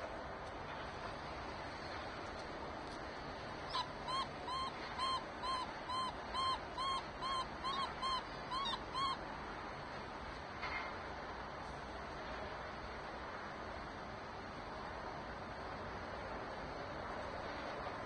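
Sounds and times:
falcon calling harsh notes: 3.7s - 9.2s.

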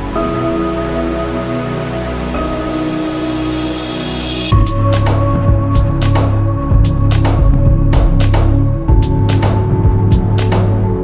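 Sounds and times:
music with sustained chords: 0.0s - 11.0s
steady percussive beat: 4.5s - 10.8s.

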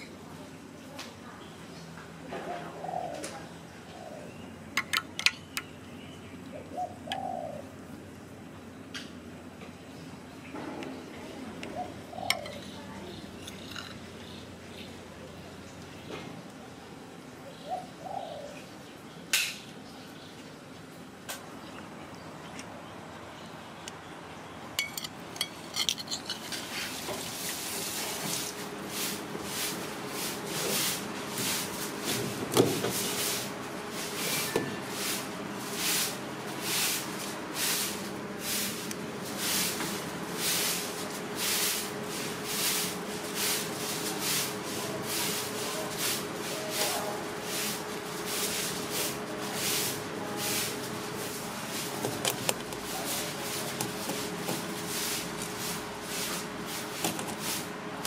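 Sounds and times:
faint steady hum: 0.0s - 28.9s
cleaver scraping fish: 12.3s - 14.0s, 24.8s - 27.8s.

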